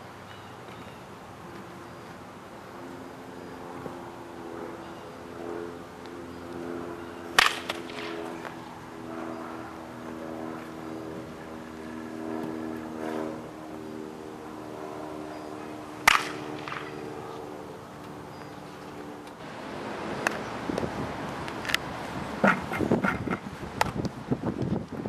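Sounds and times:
baseball bat striking ball: 7.3s - 8.4s, 16.0s - 17.1s.

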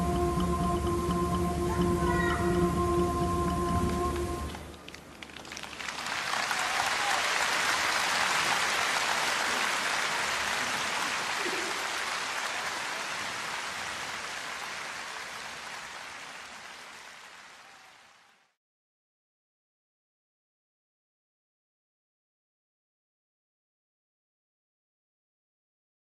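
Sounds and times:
audience applauding: 3.9s - 18.5s.

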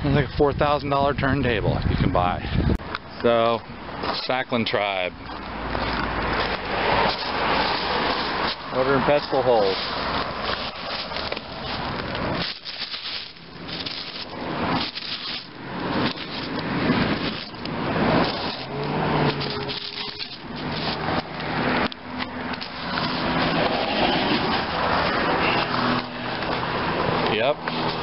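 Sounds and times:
camera handling rubbing and rustling: 9.6s - 24.8s.

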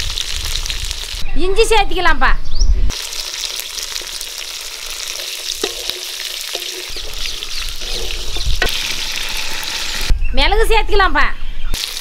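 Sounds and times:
ingredients sizzling in a pan: 2.9s - 10.2s, 11.8s - 12.0s
metal spatula scraping a pan: 5.6s - 10.1s.

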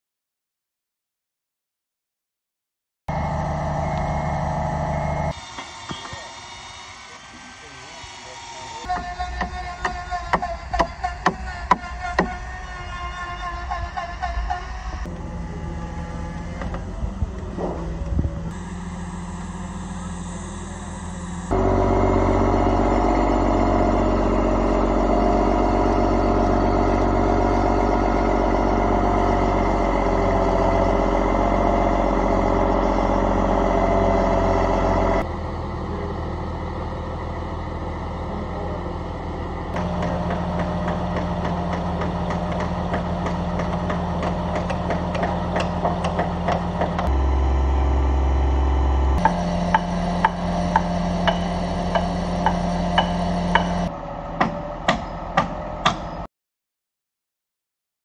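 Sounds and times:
heavy equipment engines running: 3.1s - 56.3s.

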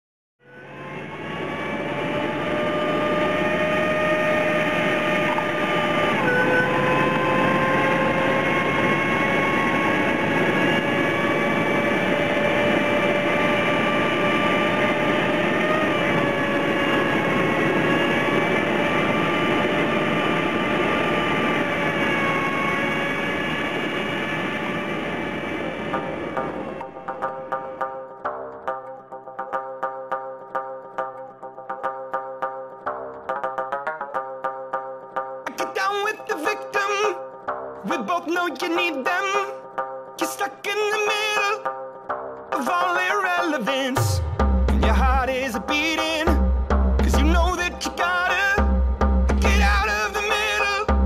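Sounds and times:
heavy vehicle engine droning: 0.5s - 27.0s, 44.1s - 51.0s.

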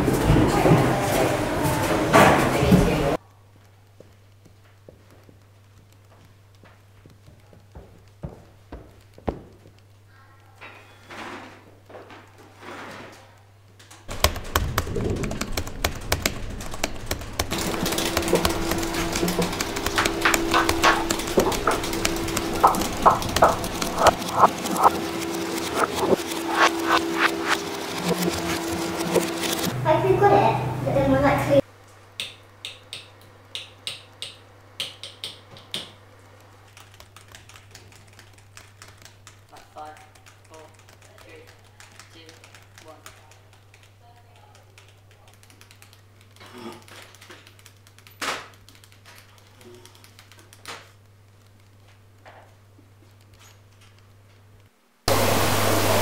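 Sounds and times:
keyboards typing clatter: 3.6s - 10.0s, 14.0s - 29.8s, 33.9s - 52.2s.

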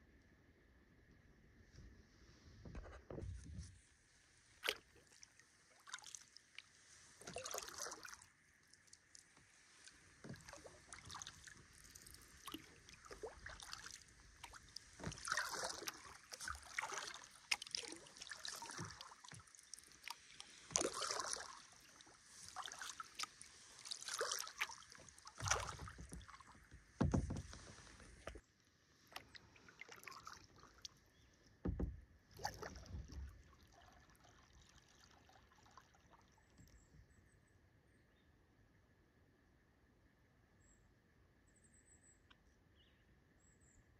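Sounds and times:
paddle strokes splashing water: 2.3s - 28.4s, 29.0s - 36.8s
dull knocks: 27.0s - 28.3s, 31.6s - 32.0s.

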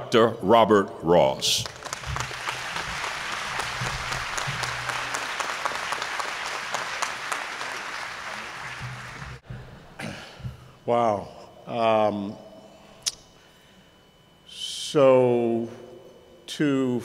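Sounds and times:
audience applauding: 1.6s - 9.4s.

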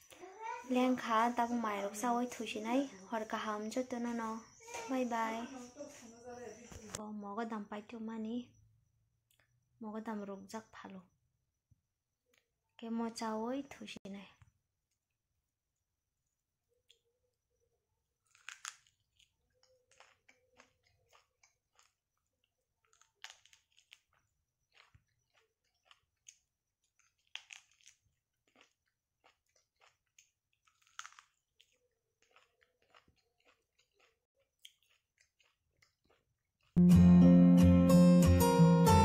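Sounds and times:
crunchy bites into corn: 18.2s - 36.8s
soft chewing clicks: 18.2s - 36.8s.

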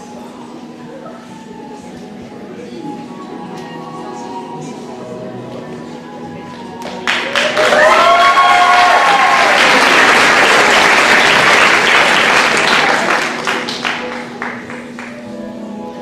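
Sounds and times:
audience applauding: 6.8s - 15.2s.

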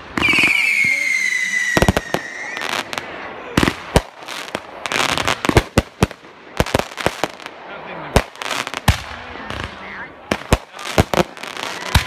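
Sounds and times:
crackling firework reports: 0.0s - 12.0s
firework bangs: 0.0s - 12.0s
firework whistle: 0.2s - 2.9s.

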